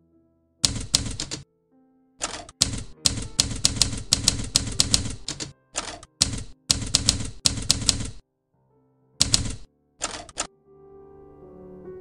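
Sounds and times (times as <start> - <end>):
typewriter key clacks: 0.6 - 1.4, 2.2 - 8.2, 9.2 - 10.5.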